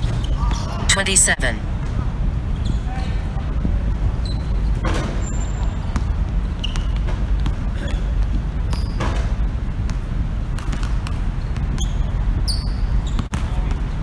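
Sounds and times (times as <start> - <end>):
steady low rumble: 0.0 - 6.5.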